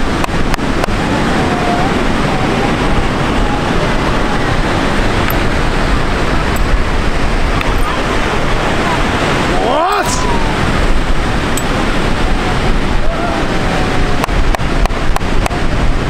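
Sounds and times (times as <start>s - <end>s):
breaking surf: 0.0s - 16.0s
wind rumbling on microphone: 0.0s - 16.0s.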